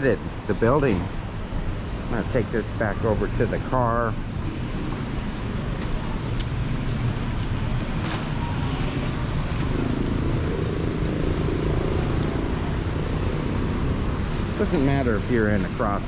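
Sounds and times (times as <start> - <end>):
cars driving past: 0.0 - 16.0
engine hum: 0.0 - 16.0
low traffic rumble: 0.0 - 16.0.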